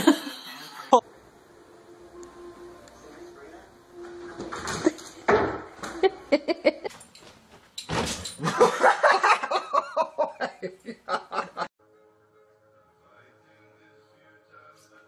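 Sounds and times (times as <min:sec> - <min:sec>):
person laughing hard: 0:00.0 - 0:01.0, 0:06.0 - 0:06.9, 0:08.4 - 0:11.7.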